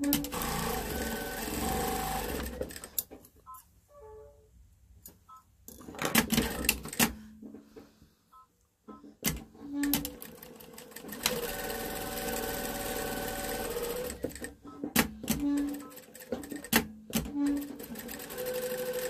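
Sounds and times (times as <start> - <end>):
sewing machine stitching: 0.0 - 3.0, 6.1 - 7.1, 9.3 - 19.0.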